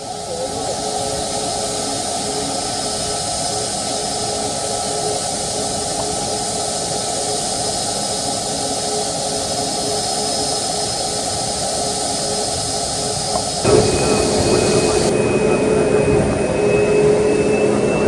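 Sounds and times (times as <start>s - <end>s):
jet engines idling: 0.0s - 18.0s.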